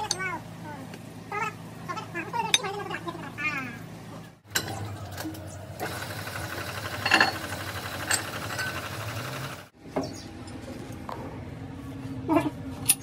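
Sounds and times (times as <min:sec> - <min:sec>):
rapid mechanical whirr: 0:05.2 - 0:09.8.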